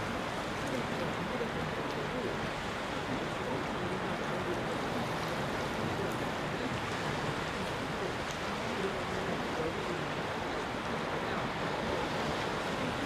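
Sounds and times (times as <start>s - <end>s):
surf washing over rocks: 0.0s - 13.0s.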